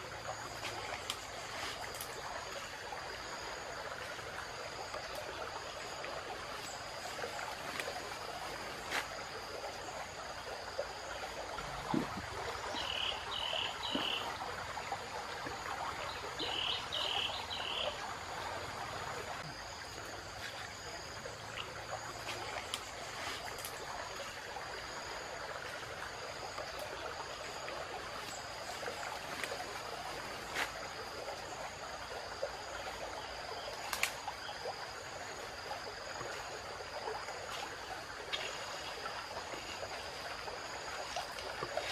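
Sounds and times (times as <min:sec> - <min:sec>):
forest stream rushing: 0:00.0 - 0:41.9
high insect drone: 0:00.0 - 0:41.9
twigs snapping underfoot: 0:33.9 - 0:34.2.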